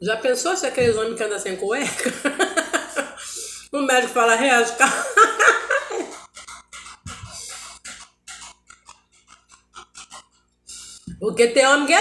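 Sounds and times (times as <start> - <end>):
woman laughing: 1.8 - 3.3, 4.8 - 6.4.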